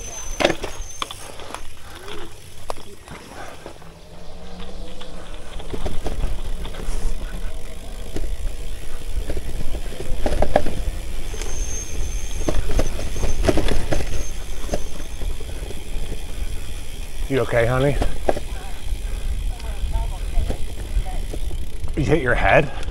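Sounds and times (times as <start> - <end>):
bike rattling over bumps: 0.0 - 22.9
bike tyre rumble: 0.0 - 22.9.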